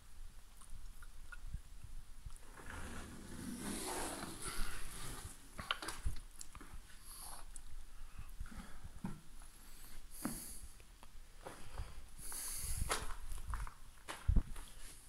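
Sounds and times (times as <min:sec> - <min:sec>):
footsteps crunching on rubble: 0:11.4 - 0:14.8.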